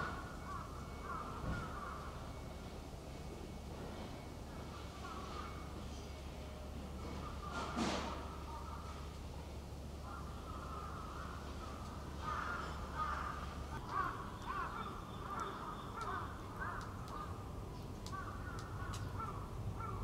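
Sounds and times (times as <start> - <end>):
faint clicks: 15.3 - 17.3, 17.9 - 19.2.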